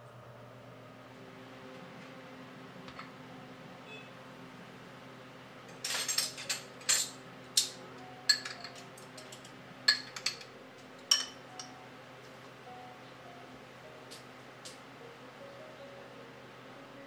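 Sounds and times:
ceramic and glass dishes clinking: 8.3s - 8.8s, 9.9s - 10.5s, 11.1s - 11.7s.

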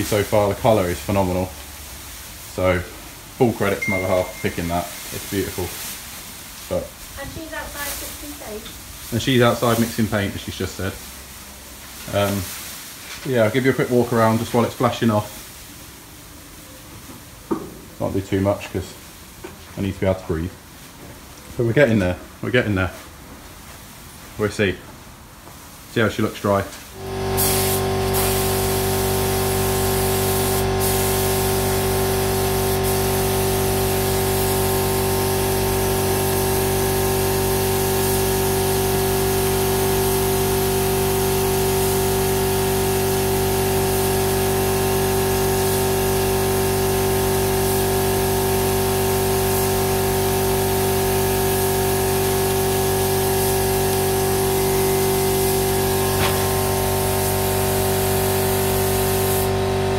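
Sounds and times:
compressed air hissing: 27.0s - 59.6s.

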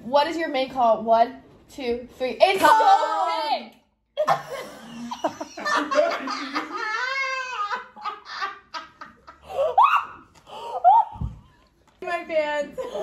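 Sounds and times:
young women laughing: 4.5s - 10.2s
long high cry: 9.6s - 10.2s.

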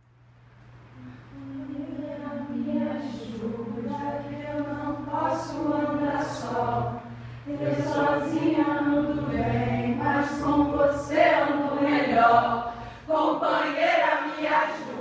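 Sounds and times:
group of people singing: 2.0s - 15.0s.

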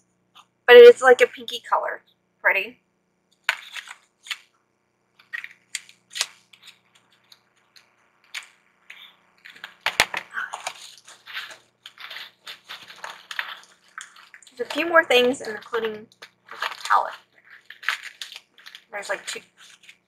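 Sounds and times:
packaging rustling: 3.4s - 4.6s, 5.2s - 20.0s.

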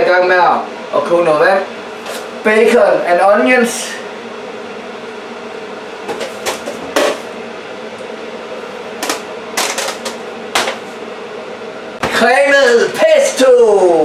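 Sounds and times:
pots knocking on counter: 6.1s - 7.3s, 9.0s - 10.8s.

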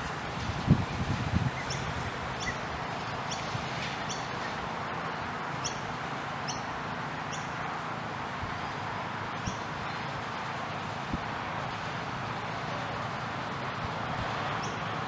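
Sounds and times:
bird chirping: 1.5s - 4.6s.

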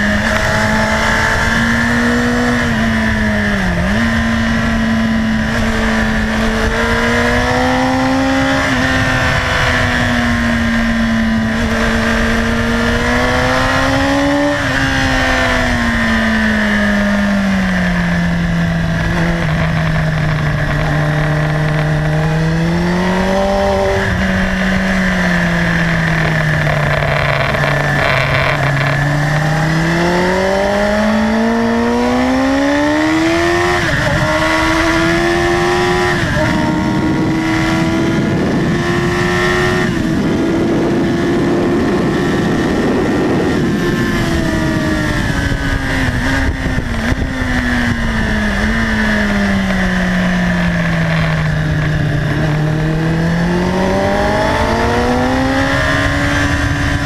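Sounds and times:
motorcycle engine revving: 0.0s - 57.0s
wind rushing: 32.9s - 49.7s.

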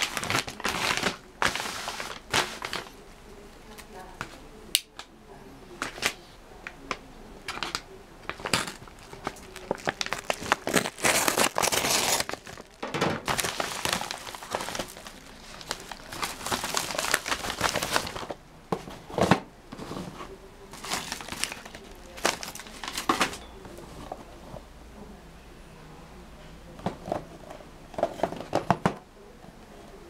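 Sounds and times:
paper envelope tearing: 0.0s - 2.9s, 8.3s - 18.4s.

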